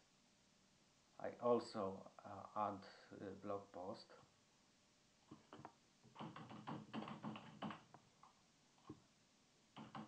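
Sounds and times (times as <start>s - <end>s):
faint keyboard typing: 5.2s - 9.0s, 9.7s - 10.0s.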